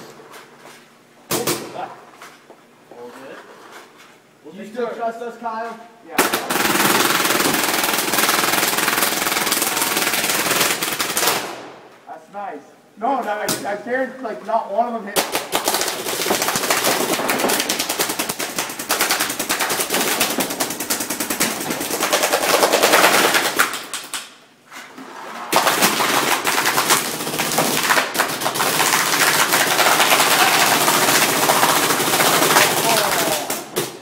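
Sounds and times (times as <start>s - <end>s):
paintball markers firing rapidly: 6.2s - 11.6s, 15.2s - 24.3s, 25.5s - 34.0s.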